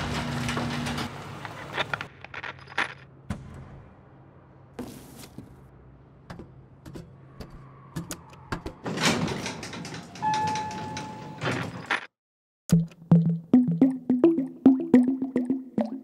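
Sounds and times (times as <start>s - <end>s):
elevator doors sliding open: 0.0s - 2.0s, 8.6s - 12.0s.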